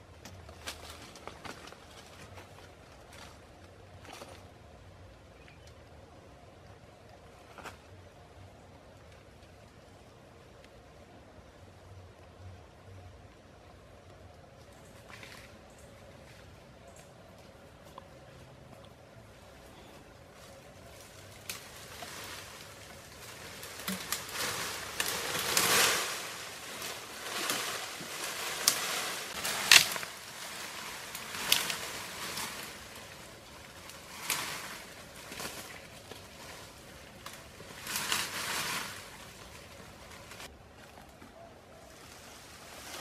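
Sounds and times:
vines and branches rustling: 0.0 - 43.0
sharp cracks of branches: 23.2 - 36.3.

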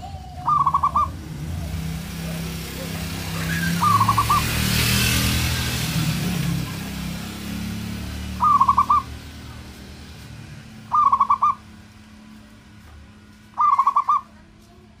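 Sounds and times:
dove cooing: 0.0 - 1.7, 2.3 - 4.6, 8.3 - 9.2, 10.9 - 11.6, 13.6 - 14.3.

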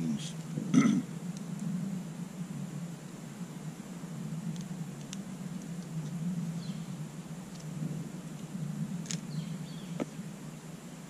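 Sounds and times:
steady low hum: 0.0 - 11.0
small bird chirps: 6.0 - 7.0, 9.1 - 10.2.

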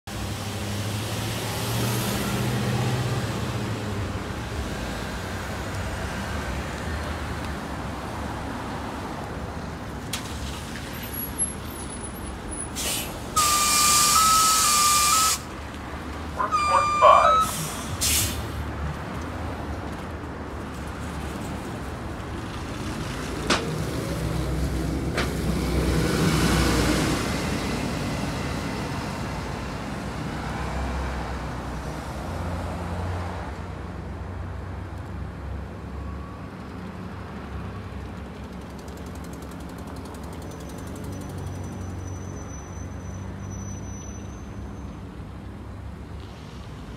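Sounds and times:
passing traffic: 0.0 - 46.9
bus drive hum: 0.1 - 46.9
air brake hiss: 12.7 - 15.5, 17.4 - 18.6
steady beeping tone: 13.4 - 15.4, 16.4 - 17.6.

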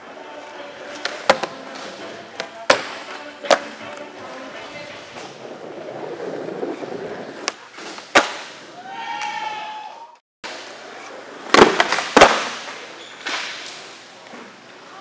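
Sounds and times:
skateboard wheels rolling: 0.0 - 9.5, 10.5 - 14.9
skateboard landing crack: 0.9 - 4.0, 6.7 - 8.7, 10.5 - 13.9.

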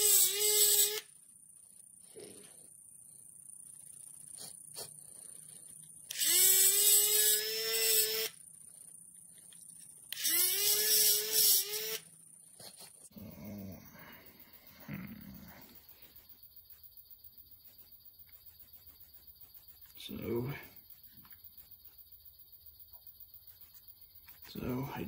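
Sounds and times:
rotary tool grinding metal: 6.1 - 8.4, 10.1 - 12.1.

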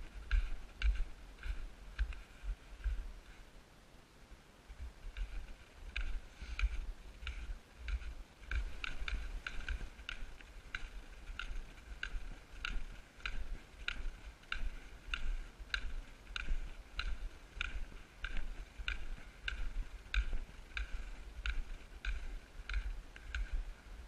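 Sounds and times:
footsteps on packed snow: 5.2 - 24.0.

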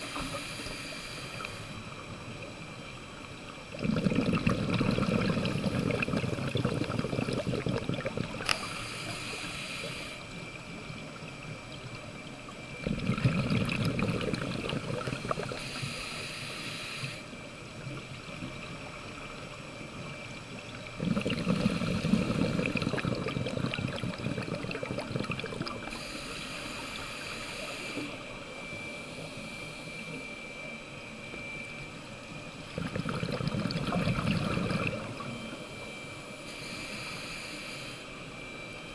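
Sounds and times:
regulator exhaled air bubbling underwater: 3.6 - 16.0, 17.8 - 30.7, 32.6 - 36.1.

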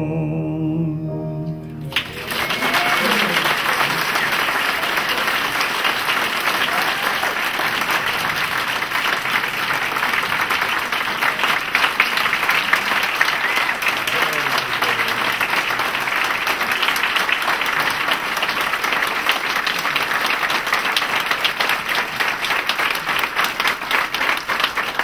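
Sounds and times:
crowd applauding: 1.9 - 25.0.

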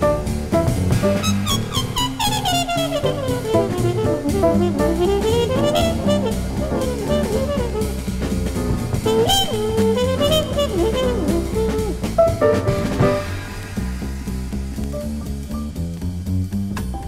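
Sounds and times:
loud drum accent: 0.0 - 16.7
swing jazz from vinyl record: 0.0 - 17.0
trumpet bending in pitch: 1.1 - 13.4.

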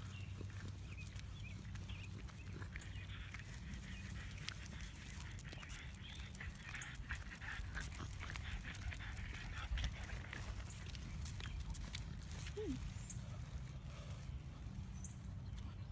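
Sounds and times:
dog panting: 0.2 - 12.6.

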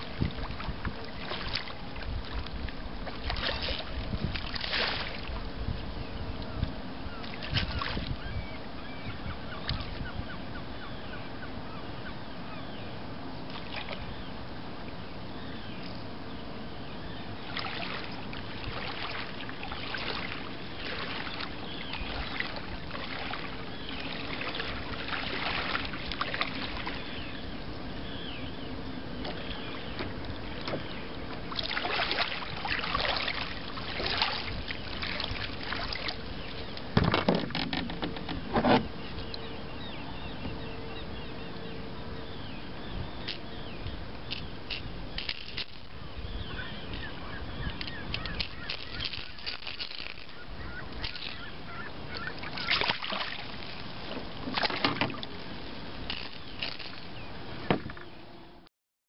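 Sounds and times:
shallow water splashing: 0.0 - 5.5, 7.2 - 8.2, 13.5 - 14.0, 17.4 - 28.3, 29.2 - 38.8, 44.2 - 58.0.

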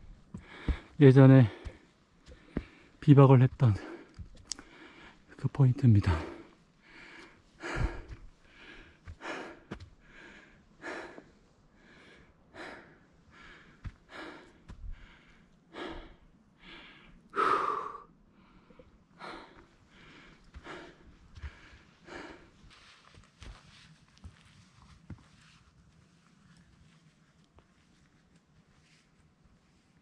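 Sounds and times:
faint low thuds: 0.0 - 2.9
person breathing hard: 0.3 - 3.0, 3.7 - 5.3, 6.0 - 23.1.

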